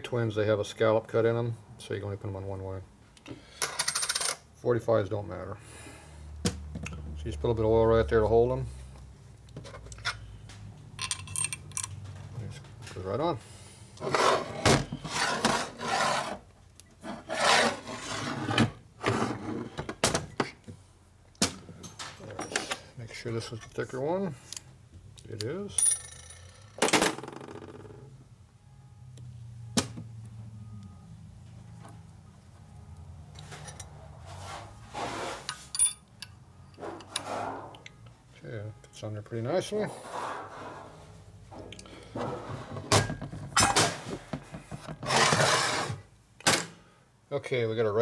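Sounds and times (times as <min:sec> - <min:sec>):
metal parts rustling and scraping: 0:11.0 - 0:13.0, 0:33.4 - 0:37.8
flywheel scraping on metal: 0:14.0 - 0:16.4, 0:45.0 - 0:46.0
low steady hum: 0:27.7 - 0:39.7.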